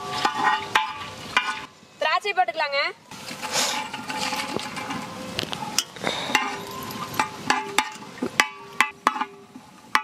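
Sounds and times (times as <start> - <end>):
metal ladle knocking pan: 0.0 - 1.7, 6.3 - 10.0.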